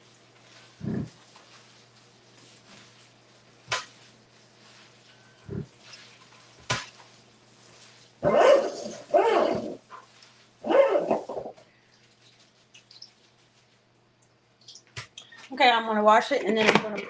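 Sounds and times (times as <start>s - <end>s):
dog barking: 8.2s - 9.8s, 10.6s - 11.2s.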